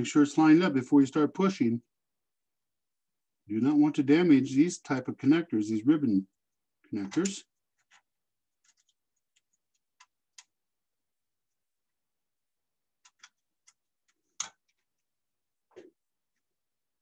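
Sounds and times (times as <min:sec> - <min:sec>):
fingers clicking cable into connector: 0:13.0 - 0:14.8.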